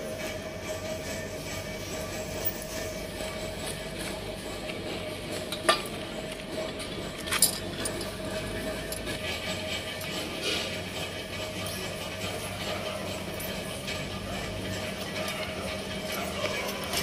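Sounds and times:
steady background tone: 0.0 - 17.0
metal parts clinking: 7.2 - 9.2.

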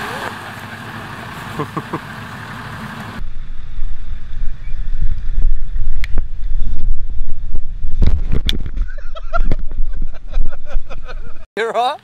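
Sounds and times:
wind buffeting microphone: 3.2 - 11.4.

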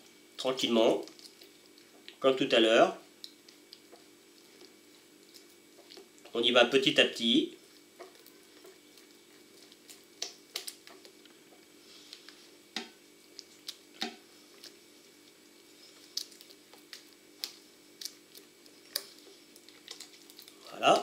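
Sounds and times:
faint steady hum: 0.0 - 21.0
spatula stirring wet batter: 7.6 - 21.0.

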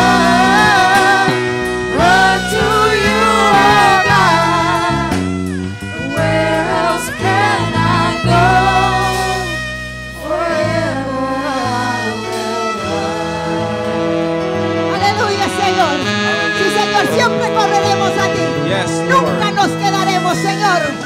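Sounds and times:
person singing: 0.0 - 14.6
band accompaniment: 0.0 - 21.0.

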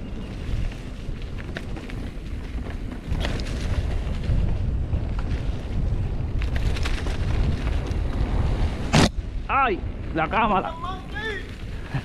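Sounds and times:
wind buffeting microphone: 0.0 - 12.0
bike clicks and rattles: 0.2 - 8.8.

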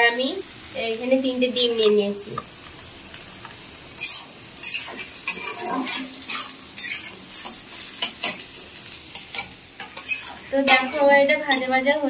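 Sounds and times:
vegetables sizzling in oil: 0.0 - 12.0
spatula scraping and stirring: 4.0 - 11.8.

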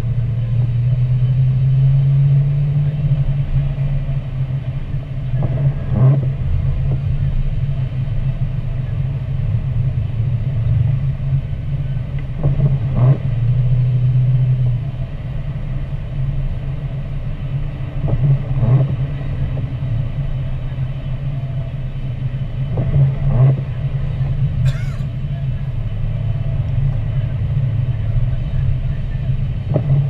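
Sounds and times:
car engine and road drone: 0.0 - 30.0.

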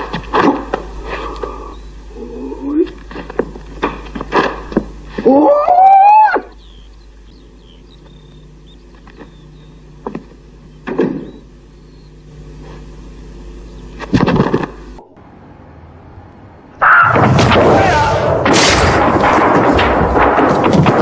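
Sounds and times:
low hum: 0.0 - 21.0.

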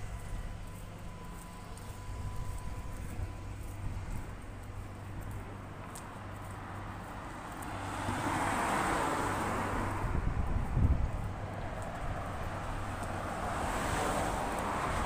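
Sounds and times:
passing vehicle: 0.0 - 15.0
wind buffeting microphone: 9.6 - 13.4.

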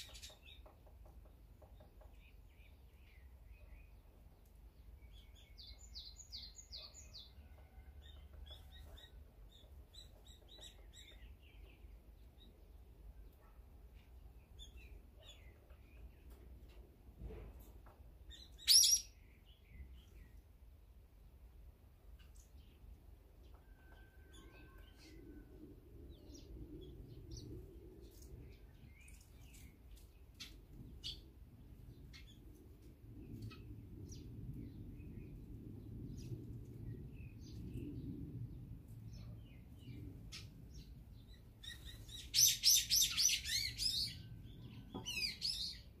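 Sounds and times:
songbirds chirping: 0.0 - 46.0
faint low rumble: 19.2 - 42.3.

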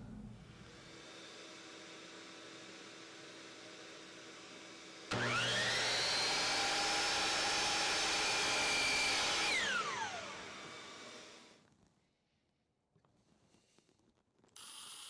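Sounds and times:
miter saw cutting wood: 0.6 - 11.5.

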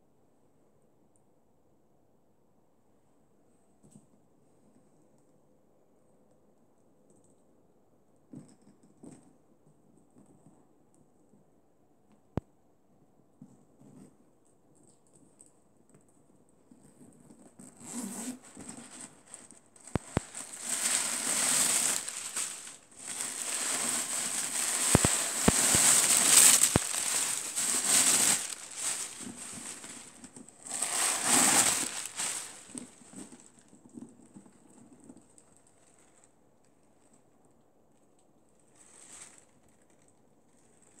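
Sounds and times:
tissue paper rustling: 17.8 - 33.5.

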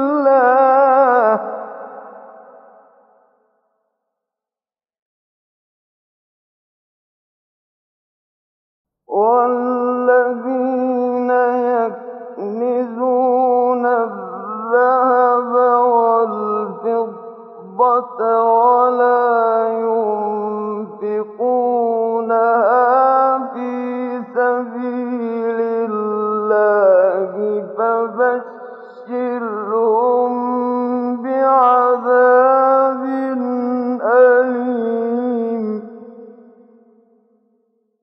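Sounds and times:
man chanting melodically: 0.0 - 2.7, 9.1 - 35.9.

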